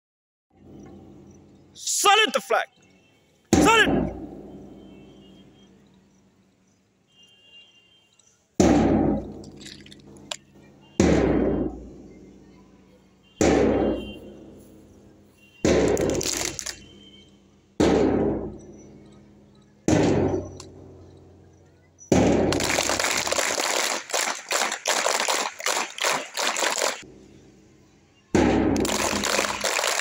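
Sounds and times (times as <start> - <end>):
loud thumps: 3.5 - 4.6, 8.6 - 9.6, 11.0 - 12.0, 13.4 - 14.5, 15.6 - 16.8, 17.8 - 18.8, 19.9 - 21.2, 22.1 - 23.0, 28.4 - 29.6.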